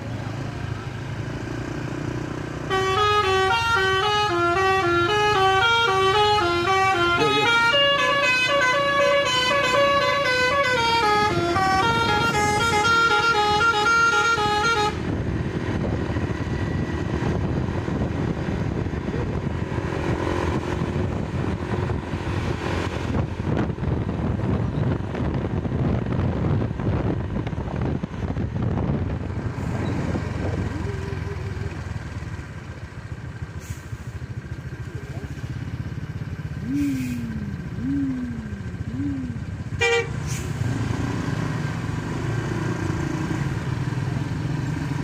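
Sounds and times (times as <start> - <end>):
bus engine and road noise: 0.0 - 45.0
multi-tone bus horn melody: 2.6 - 15.4, 39.7 - 40.6.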